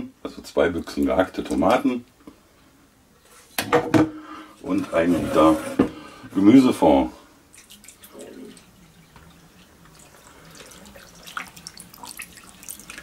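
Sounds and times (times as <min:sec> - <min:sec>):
liquid trickling into pot: 0:07.5 - 0:13.0
small drips and ticks: 0:07.5 - 0:13.0.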